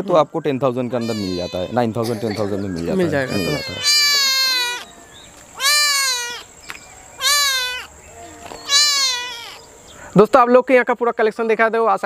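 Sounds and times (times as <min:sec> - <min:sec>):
kitten meowing: 0:01.0 - 0:01.8, 0:03.1 - 0:04.9, 0:05.6 - 0:06.5, 0:07.2 - 0:07.9, 0:08.6 - 0:09.6.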